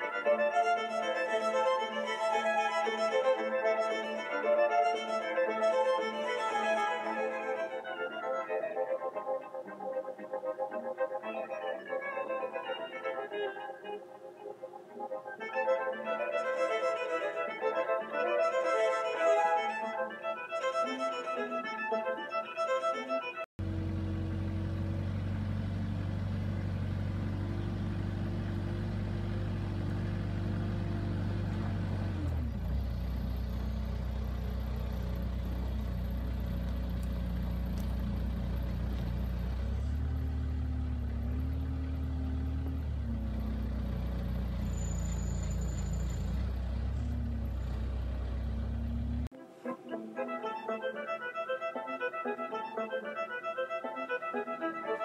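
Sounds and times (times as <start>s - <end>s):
forklift engine running: 0.0s - 8.3s, 23.6s - 49.3s.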